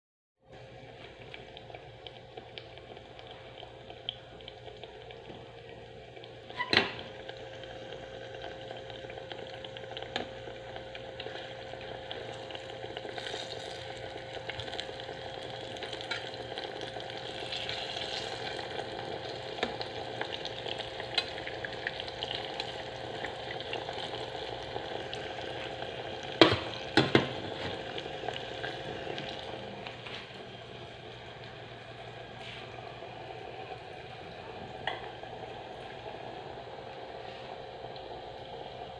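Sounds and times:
food sizzling in hot oil: 1.4 - 30.0.

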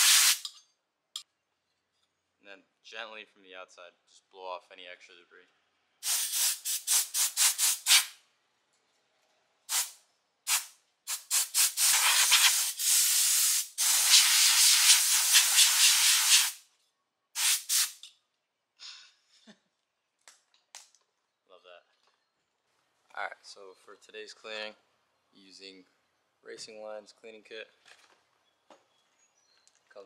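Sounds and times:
compressed air blow gun hissing: 0.0 - 0.5, 6.0 - 8.1, 9.7 - 16.6, 17.4 - 18.0.

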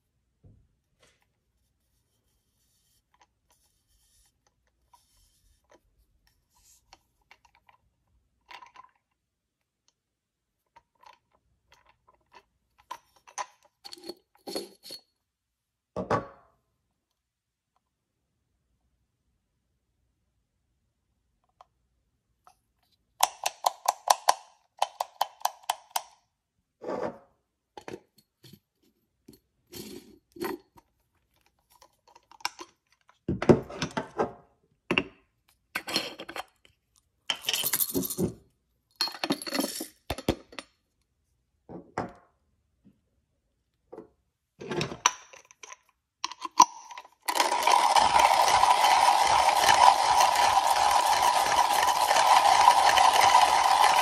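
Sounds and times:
coffee beans rattling: 47.2 - 54.0
hand grinder crunching whir: 47.2 - 54.0
grinder adjustment wheel clicking: 47.3 - 54.0.

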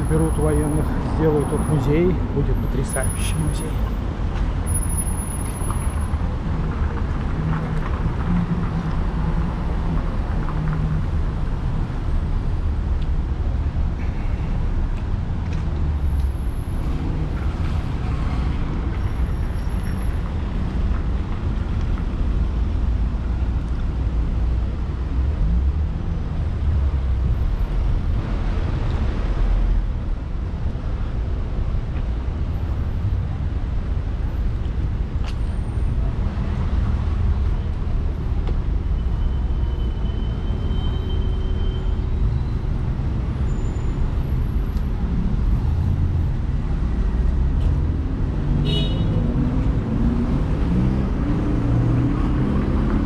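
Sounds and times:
road traffic passing: 0.0 - 53.0.

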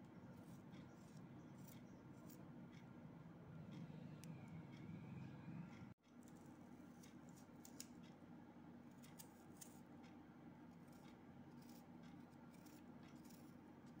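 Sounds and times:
low steady background hum: 0.0 - 14.0
knife cutting onion clicks: 8.9 - 14.0.

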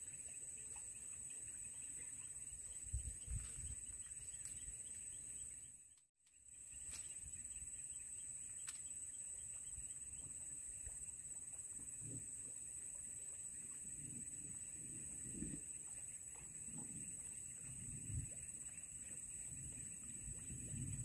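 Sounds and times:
high-pitched insect chorus: 0.0 - 5.8, 6.5 - 21.0
faint sharp ticks: 8.6 - 8.9.

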